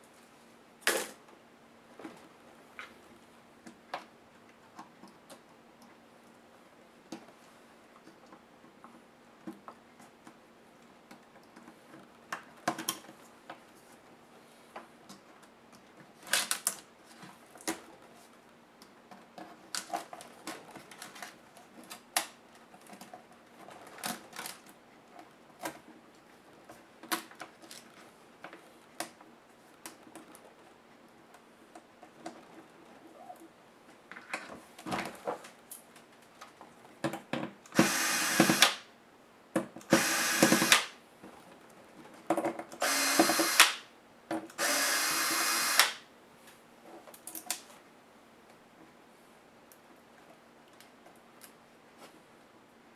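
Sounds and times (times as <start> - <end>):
faint steady hum: 0.0 - 52.9.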